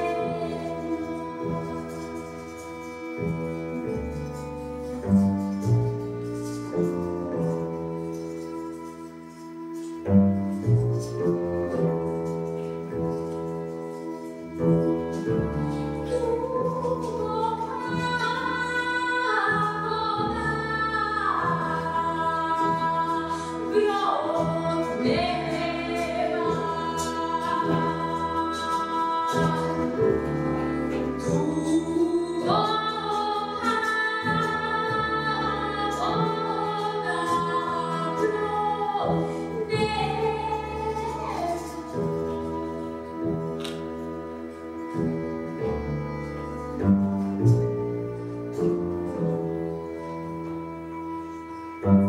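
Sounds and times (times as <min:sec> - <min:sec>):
woman singing: 0:00.0 - 0:03.7, 0:16.0 - 0:43.5
violin: 0:00.0 - 0:52.0.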